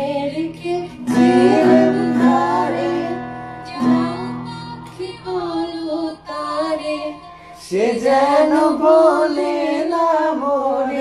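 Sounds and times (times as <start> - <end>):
acoustic guitar strummed: 0.0 - 7.9
person singing slow melody: 0.0 - 11.0.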